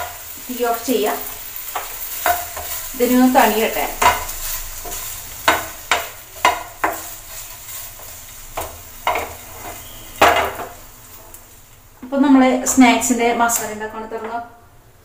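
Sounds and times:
spoon knocking metal pan: 0:01.7 - 0:02.8, 0:03.4 - 0:07.1, 0:08.6 - 0:10.8.

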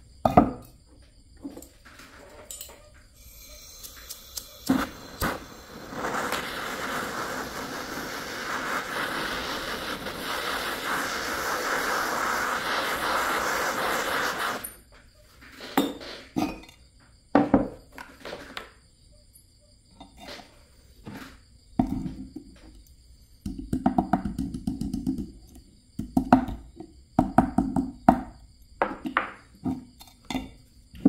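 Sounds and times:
metallic clinks and knocks: 0:01.5 - 0:03.0
gas torch flame hissing: 0:03.1 - 0:14.9, 0:15.5 - 0:16.4.

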